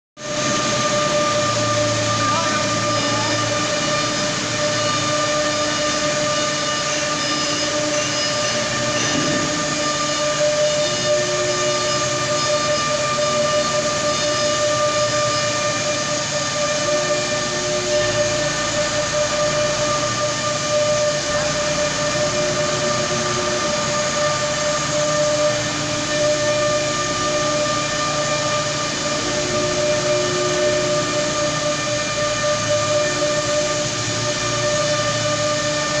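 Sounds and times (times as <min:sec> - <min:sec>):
router whine: 0:00.2 - 0:36.0
rushing noise: 0:07.6 - 0:13.0.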